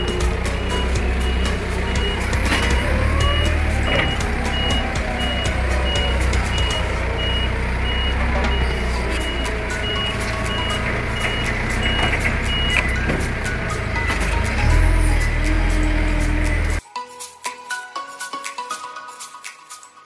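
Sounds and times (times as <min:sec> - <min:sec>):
warning beeper: 0:00.0 - 0:13.0
forklift engine drone: 0:00.0 - 0:16.8.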